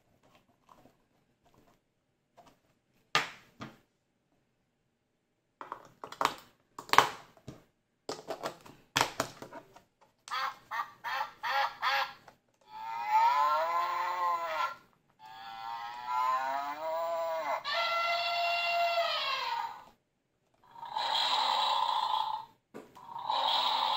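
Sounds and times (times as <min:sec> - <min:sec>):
recorded duck quacking: 0:10.3 - 0:12.2.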